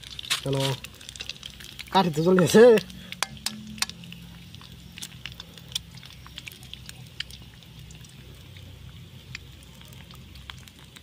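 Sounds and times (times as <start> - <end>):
eggshells cracking: 0.0 - 11.0
shell tapping on iron pan: 3.2 - 4.0.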